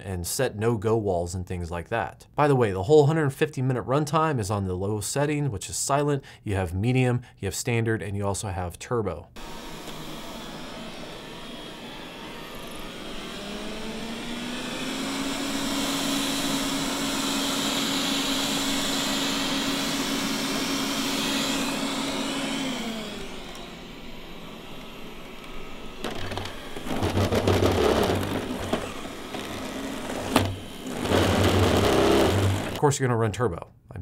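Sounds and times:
robot vacuum suction whine: 0:09.4 - 0:32.8
scraping and humming: 0:09.4 - 0:32.8.

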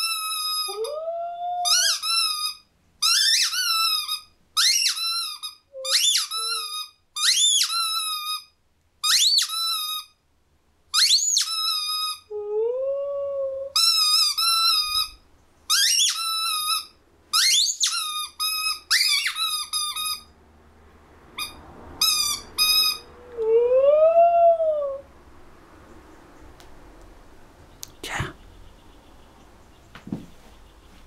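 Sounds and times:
squeaking toy ball: 0:00.0 - 0:01.0, 0:01.6 - 0:10.2, 0:10.9 - 0:12.3, 0:13.8 - 0:20.4, 0:21.4 - 0:23.2
dog howling: 0:00.7 - 0:01.9, 0:12.3 - 0:13.8, 0:23.0 - 0:25.1.

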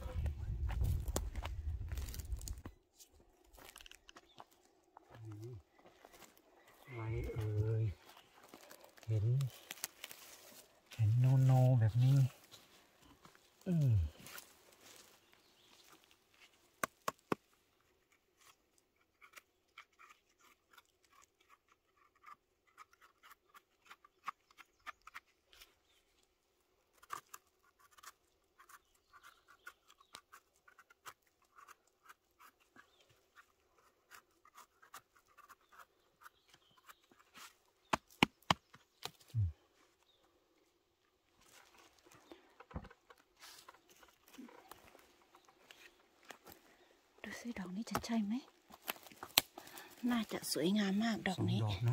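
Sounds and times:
scraping at forest litter: 0:05.4 - 0:24.4, 0:43.2 - 0:47.4.

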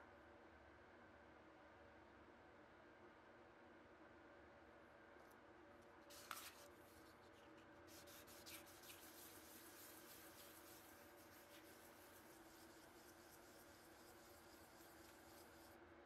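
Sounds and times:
coin rubbing on sandpaper: 0:06.1 - 0:15.8.

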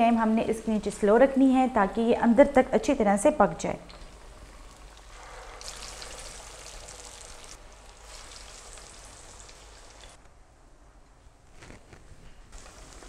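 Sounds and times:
patties deep-frying in sizzling oil: 0:03.9 - 0:10.2, 0:12.6 - 0:13.0.

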